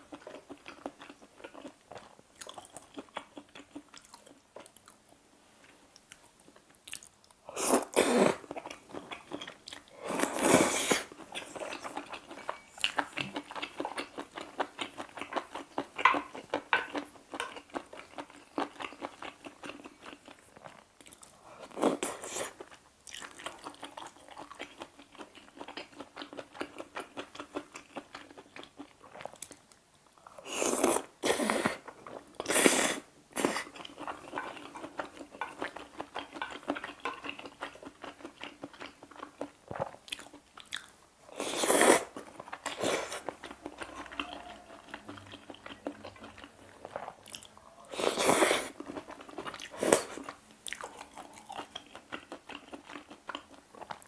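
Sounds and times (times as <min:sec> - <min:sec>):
wet chewing: 0:00.1 - 0:05.0, 0:06.0 - 0:29.6, 0:31.7 - 0:54.0
noodle slurps: 0:10.0 - 0:11.1, 0:41.4 - 0:43.8, 0:47.9 - 0:48.8.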